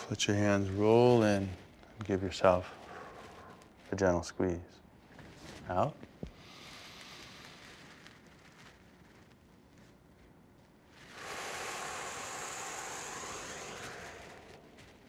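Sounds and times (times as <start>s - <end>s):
person exhaling forcefully: 11.0s - 15.0s.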